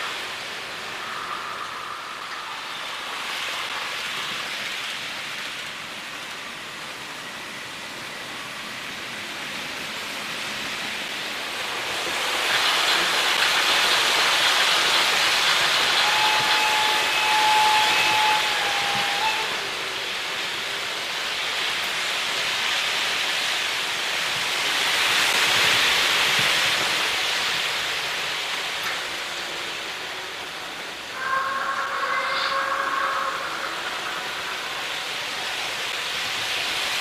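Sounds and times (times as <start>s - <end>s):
model train wheels rattling on rails: 11.1s - 23.4s
steady high tone: 31.1s - 35.8s.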